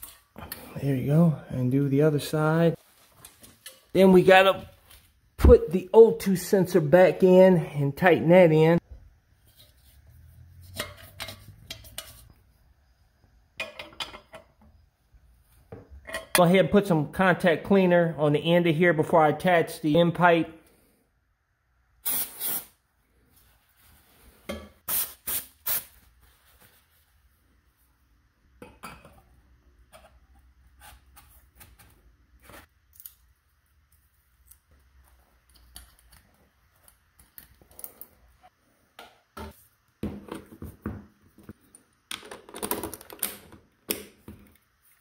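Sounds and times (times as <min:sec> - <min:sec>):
aerosol spray hiss: 0:22.0 - 0:22.8.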